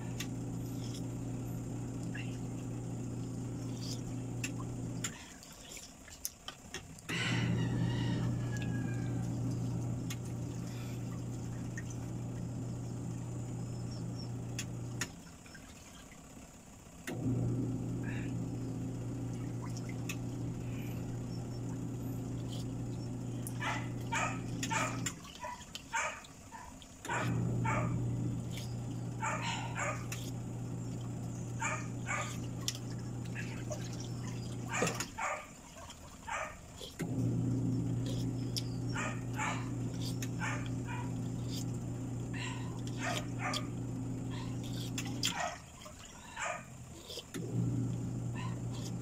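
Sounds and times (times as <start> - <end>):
low machine hum: 0.0 - 49.0
dog barking: 23.5 - 28.0, 29.2 - 30.3, 31.6 - 32.4, 34.6 - 35.6, 36.2 - 36.9, 38.9 - 41.6, 42.3 - 47.2, 48.3 - 48.9.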